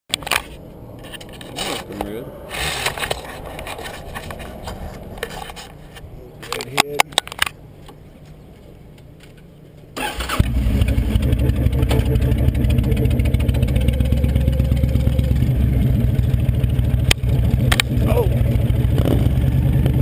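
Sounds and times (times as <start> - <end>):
motorcycle engine: 10.0 - 20.0.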